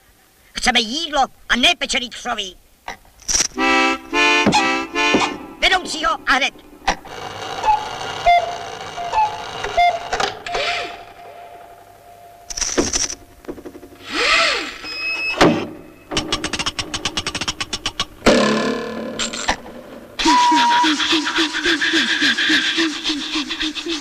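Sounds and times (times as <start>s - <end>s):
faint steady tone with blips: 7.6s - 14.0s
fast rattle of clicks: 16.1s - 18.3s.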